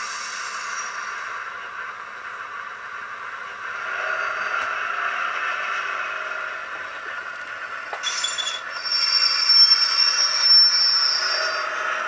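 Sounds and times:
diesel engine sound revving: 0:00.0 - 0:08.0
steady high-pitched whine: 0:00.0 - 0:12.0.

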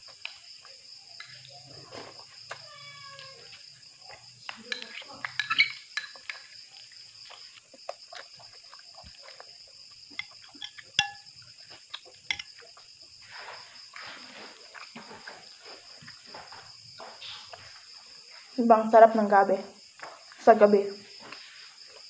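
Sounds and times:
soft chewing: 0:00.0 - 0:18.6, 0:21.1 - 0:22.0
crickets chirring: 0:00.0 - 0:22.0
spoon clinking on ceramic bowl: 0:04.7 - 0:06.4, 0:10.2 - 0:11.3, 0:12.3 - 0:12.6.

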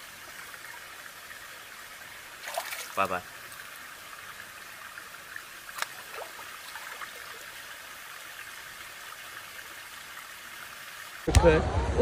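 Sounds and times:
creek water running: 0:00.0 - 0:11.4
water drips and plops: 0:02.3 - 0:11.3
splash of swimmer ducking under: 0:02.4 - 0:03.0.

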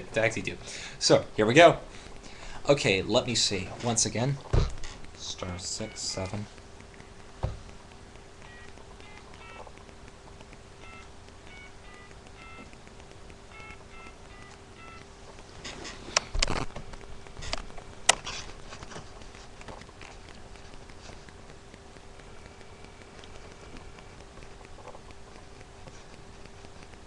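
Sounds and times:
faint steady hum: 0:00.0 - 0:27.0
sharp clicks and knocks: 0:01.5 - 0:27.0
two-tone keypad beeps: 0:05.8 - 0:06.3, 0:08.5 - 0:09.7, 0:10.8 - 0:12.8, 0:13.5 - 0:15.1.

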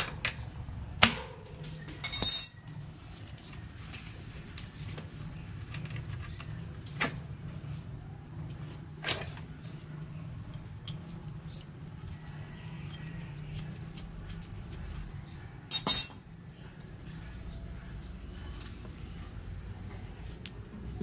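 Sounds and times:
low steady hum: 0:00.0 - 0:21.0
metal tools clinking: 0:02.0 - 0:02.7, 0:15.7 - 0:16.3.

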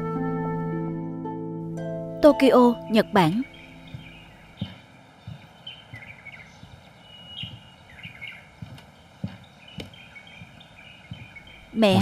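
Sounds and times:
small birds chirping: 0:02.2 - 0:12.0
footsteps on wooden footbridge: 0:02.7 - 0:12.0.

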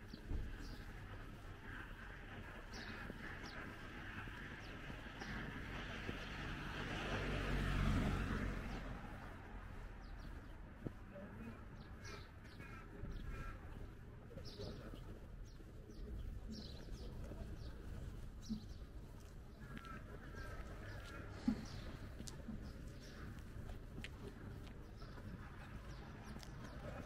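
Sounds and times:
small birds chirping: 0:00.0 - 0:06.6, 0:08.7 - 0:27.0
distant traffic hum: 0:00.0 - 0:27.0
car passing: 0:04.6 - 0:10.2.

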